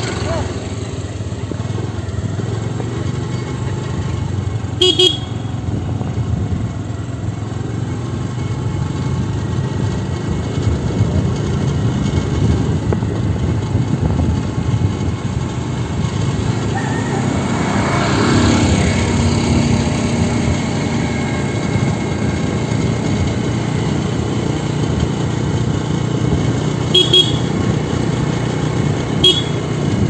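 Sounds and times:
motorbike engine: 0:00.0 - 0:30.0
vehicle horn beeps: 0:04.8 - 0:05.6, 0:26.9 - 0:27.7, 0:29.2 - 0:29.8
wind noise: 0:10.6 - 0:16.5.

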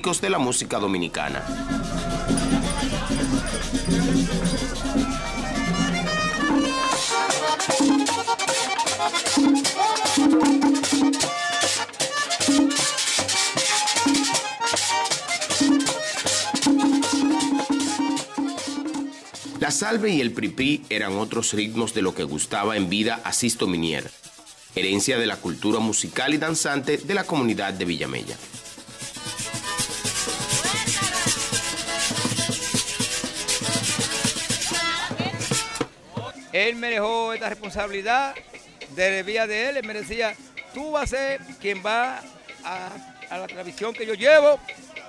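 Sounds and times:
scraped metal rhythm: 0:00.8 - 0:45.0
hand-beaten drum: 0:01.2 - 0:45.0
button accordion melody: 0:01.3 - 0:19.6, 0:29.2 - 0:35.9.

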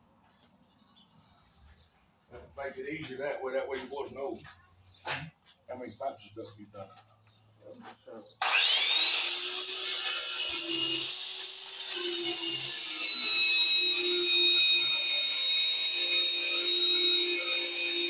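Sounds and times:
angle grinder wire brush whine: 0:08.4 - 0:18.0.

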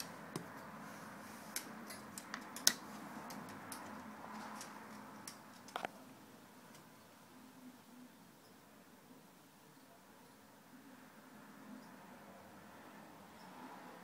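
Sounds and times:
small clicks and ticks: 0:01.5 - 0:06.0.

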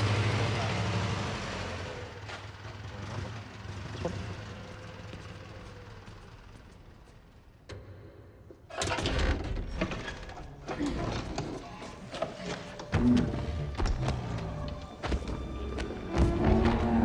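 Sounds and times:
forklift engine idling: 0:00.0 - 0:07.6.

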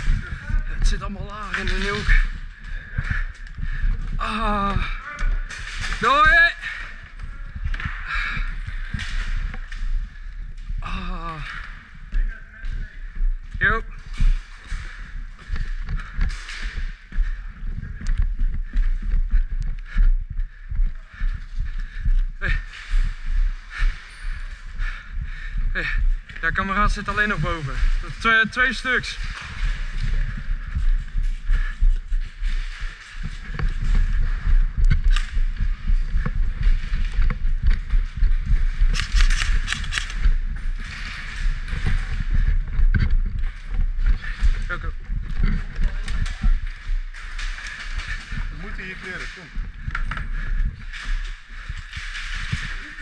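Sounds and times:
footsteps on concrete floor: 0:00.0 - 0:53.0
gear rustling: 0:00.0 - 0:53.0
running footsteps on wooden stairs: 0:00.0 - 0:53.0
low rumbling handling noise: 0:11.5 - 0:53.0.

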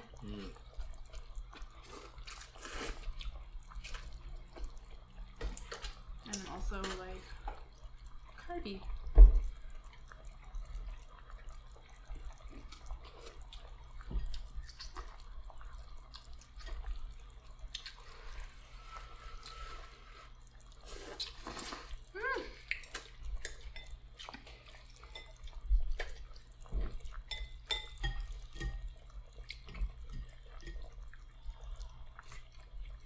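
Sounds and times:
noodles slurped: 0:01.6 - 0:04.2, 0:17.7 - 0:23.6.

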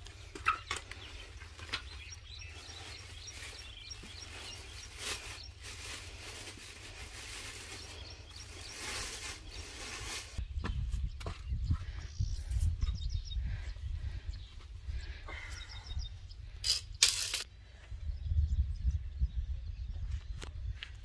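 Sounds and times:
small bird chirping: 0:00.5 - 0:06.0
low wind rumble: 0:04.2 - 0:21.0.

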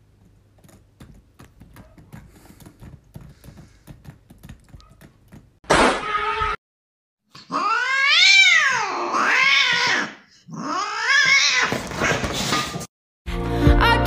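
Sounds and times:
cat yowling: 0:07.4 - 0:11.8.

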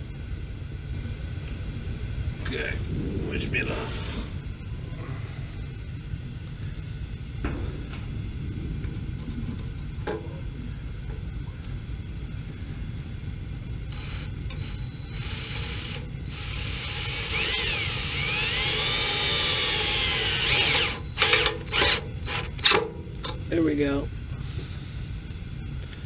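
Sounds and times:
low steady rumble: 0:00.0 - 0:26.0
power driver motor whine: 0:12.4 - 0:24.0
sharp clicks of screw tightening: 0:13.9 - 0:23.4.

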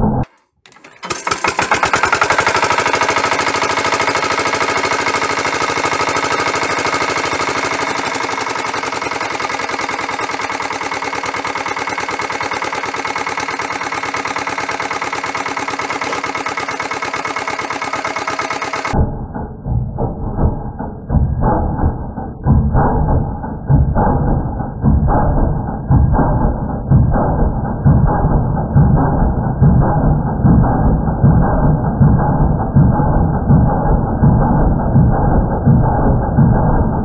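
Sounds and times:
diesel engine running: 0:00.7 - 0:19.3, 0:22.6 - 0:37.0.

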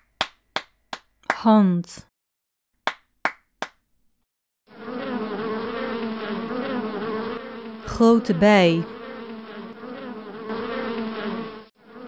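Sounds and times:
hands clapping: 0:00.0 - 0:01.6, 0:02.9 - 0:03.8
cartoon bee buzzing: 0:04.7 - 0:12.0.

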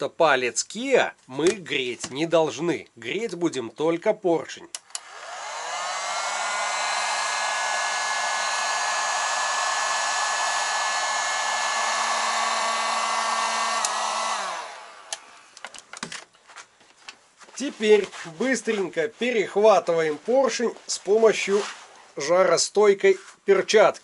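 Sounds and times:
heat gun fan blowing: 0:04.9 - 0:15.6
heat gun switch click: 0:13.7 - 0:14.4, 0:15.1 - 0:15.3.

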